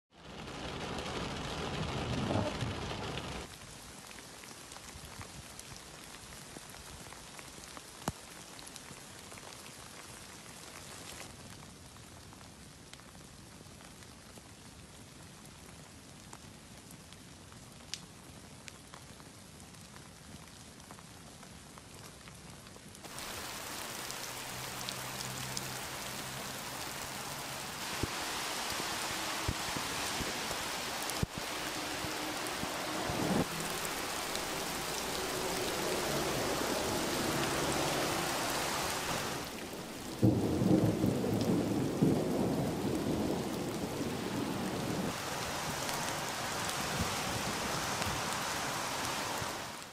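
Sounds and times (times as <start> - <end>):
rain on car windscreen: 0.1 - 11.8, 23.0 - 49.9
steady rain hiss: 0.2 - 49.9.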